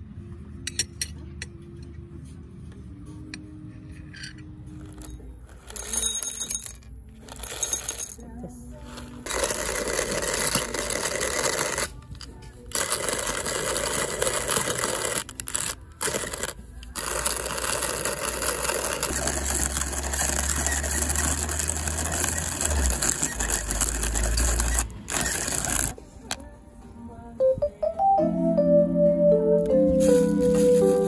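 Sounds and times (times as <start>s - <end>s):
hand coffee grinder crunching: 8.9s - 12.0s, 12.7s - 26.0s.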